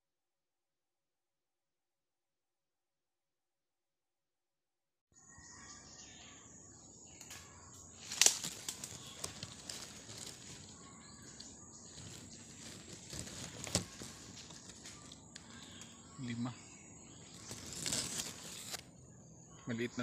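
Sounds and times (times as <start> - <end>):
twigs cracking: 7.2 - 16.5, 17.1 - 19.0
dry grass and twigs rustling: 7.4 - 19.0.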